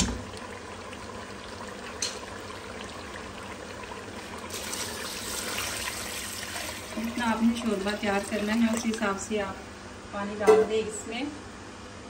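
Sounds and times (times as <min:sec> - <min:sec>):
water pouring into a pot: 0:00.0 - 0:09.3.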